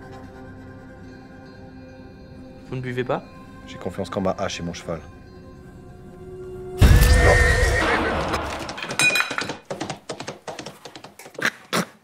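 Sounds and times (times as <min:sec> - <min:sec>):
scattered knocks: 0:08.4 - 0:11.4.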